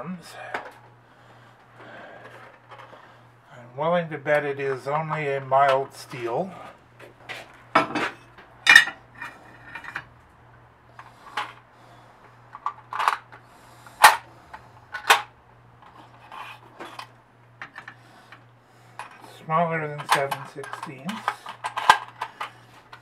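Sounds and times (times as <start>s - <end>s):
metal parts clanking: 7.4s - 10.1s, 12.6s - 13.4s, 19.9s - 23.0s.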